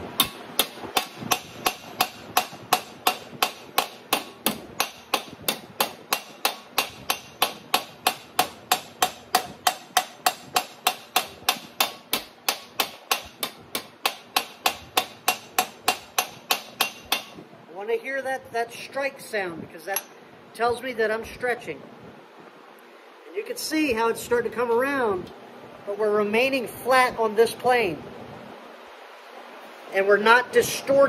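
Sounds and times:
hammer blows on sheet steel: 0.1 - 17.4.

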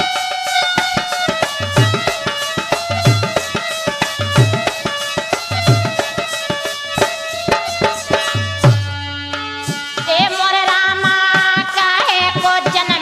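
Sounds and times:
hand drums: 0.0 - 13.0
woman singing: 10.0 - 13.0.

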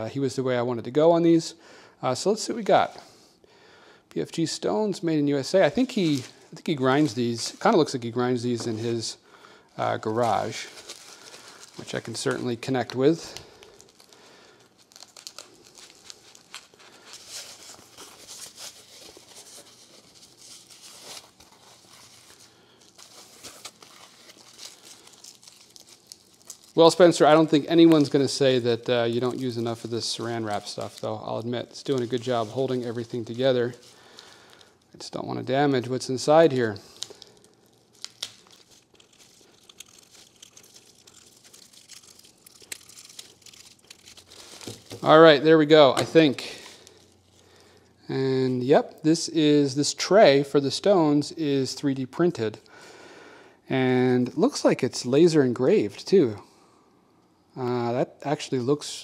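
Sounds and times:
foam and plastic wrap crinkling: 4.9 - 47.8.

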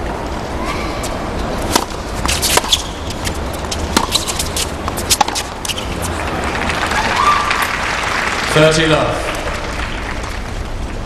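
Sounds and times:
stadium hum: 0.0 - 11.0
racquets striking tennis ball: 1.0 - 7.8
tennis ball bouncing: 1.0 - 7.8.

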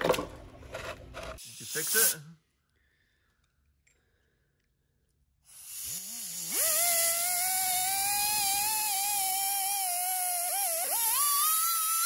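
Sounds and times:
hiss: 1.4 - 2.3, 5.5 - 11.2.

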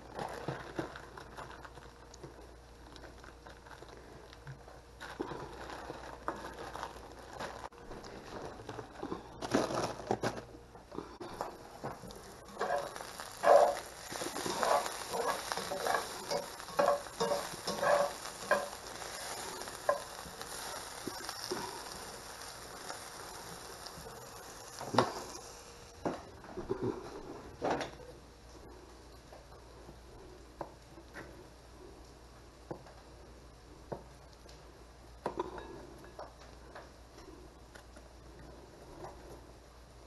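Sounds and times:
chicken sizzling in a skillet: 11.3 - 26.0
utensil scraping and knocking pan: 12.6 - 18.8.

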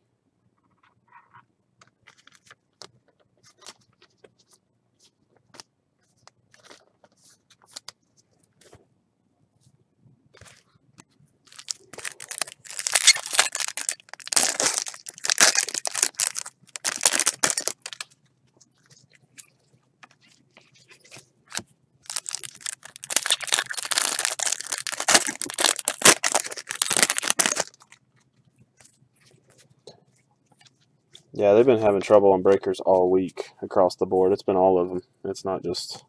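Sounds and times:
foil wrappers tearing and crinkling: 11.5 - 18.1, 21.5 - 28.0.

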